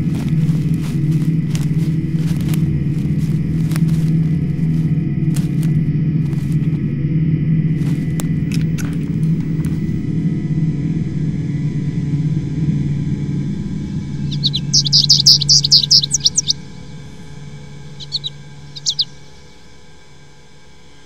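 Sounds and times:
songbird chirping: 0.0s - 6.9s, 13.7s - 21.0s
low steady hum: 0.0s - 21.0s.

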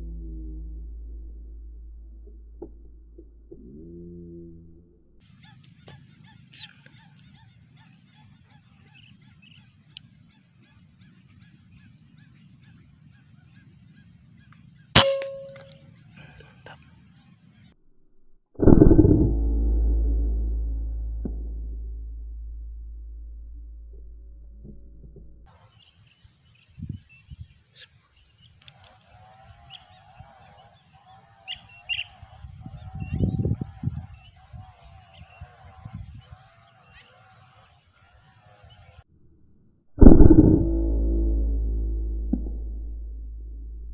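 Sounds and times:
birds chirping: 5.2s - 17.8s, 25.5s - 39.0s
short ringing tone: 15.0s - 15.8s
wavering drawn-out bird call: 28.6s - 39.0s.

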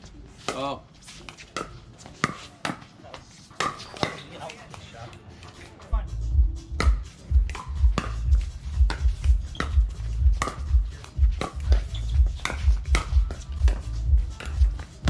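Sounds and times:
music with heavy bass beat: 6.0s - 15.0s.

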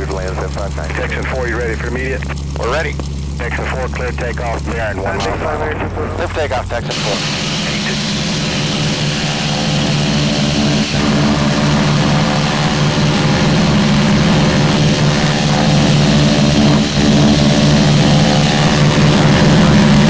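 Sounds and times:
radial aircraft engine drone: 0.0s - 20.0s.

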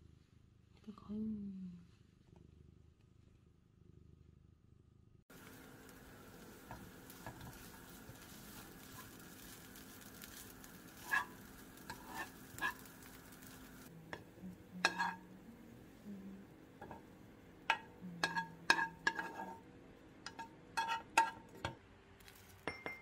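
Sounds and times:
oats sizzling in a frying pan: 5.3s - 22.7s
spoon scraping and tapping pan: 5.4s - 15.3s, 16.8s - 19.6s, 20.2s - 21.8s.

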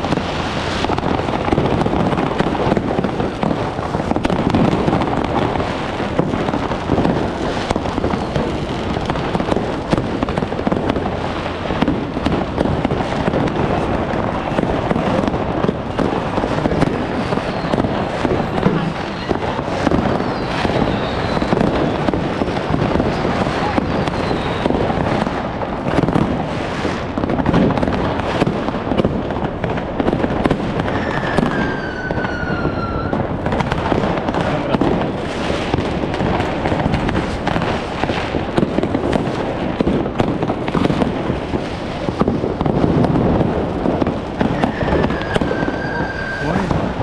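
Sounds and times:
firecrackers crackling and banging: 0.0s - 47.0s
firework whistle gliding down: 16.7s - 24.9s, 30.8s - 33.3s, 44.4s - 47.0s.

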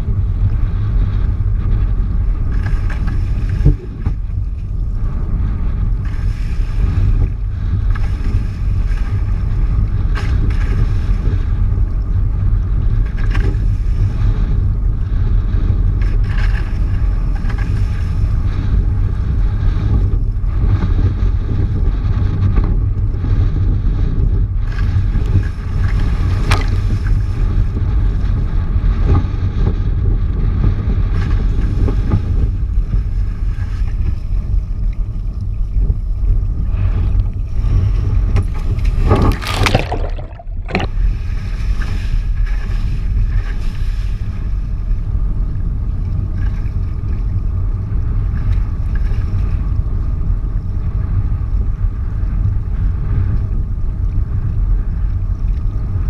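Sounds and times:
wind rumble on microphone: 0.0s - 56.0s
rushing water: 38.7s - 41.1s.

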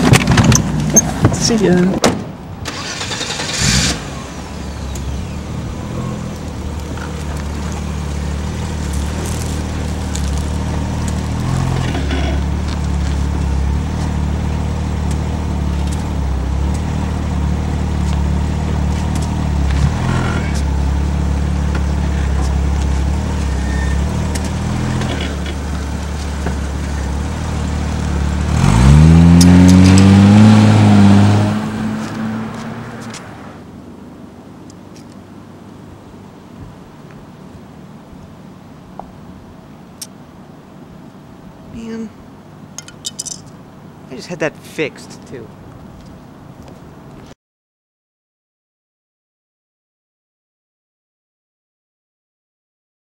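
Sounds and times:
car engine idling and revving: 0.0s - 44.2s.

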